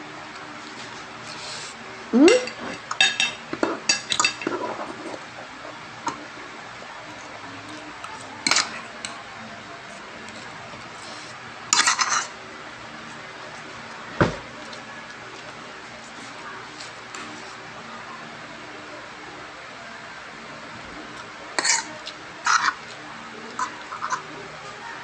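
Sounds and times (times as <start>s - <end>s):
cutlery clinking on ceramic plates: 2.3s - 5.0s, 8.4s - 9.2s.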